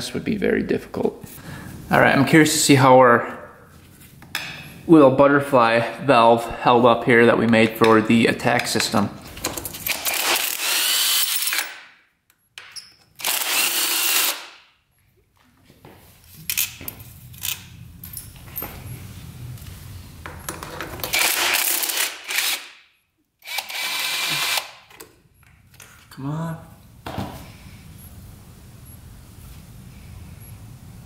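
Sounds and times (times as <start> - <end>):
power drill spinning: 9.8 - 11.8, 13.2 - 14.5, 21.1 - 22.7, 23.4 - 24.8.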